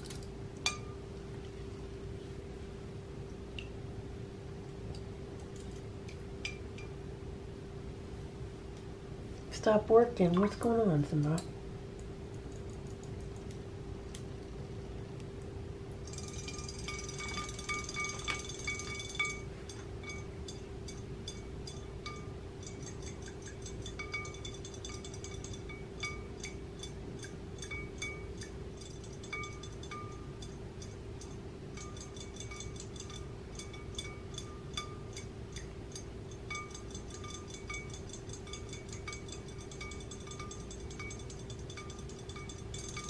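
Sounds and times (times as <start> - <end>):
steady held tone: 15.7 - 43.0.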